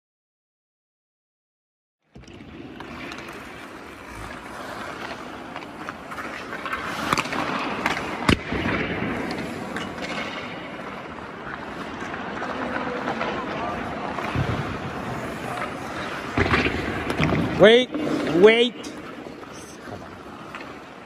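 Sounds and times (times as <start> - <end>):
skates scraping on ice: 2.2 - 21.0
stick hitting puck: 5.0 - 10.6, 15.5 - 17.6.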